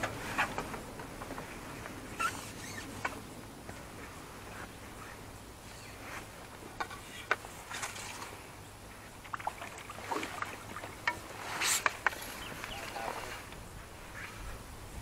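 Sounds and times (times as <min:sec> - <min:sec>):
water splashing: 0:07.0 - 0:13.5.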